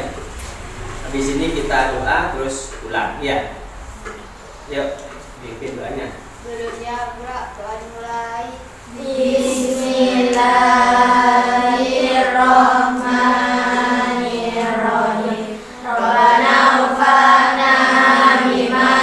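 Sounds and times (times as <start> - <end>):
girls chanting a prayer in unison: 6.4 - 19.0.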